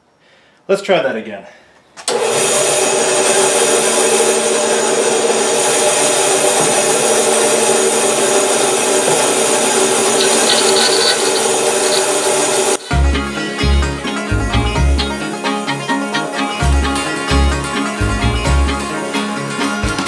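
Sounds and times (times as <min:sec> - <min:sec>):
bandsaw rasping through wood: 0:03.3 - 0:13.2
motor hum: 0:04.2 - 0:13.2.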